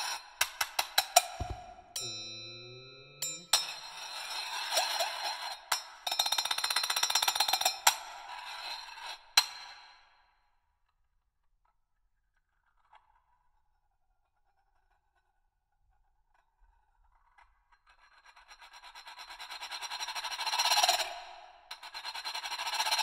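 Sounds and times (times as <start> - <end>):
sharp metal clinks: 1.4 - 4.1
singing bowl ringing: 1.4 - 5.1.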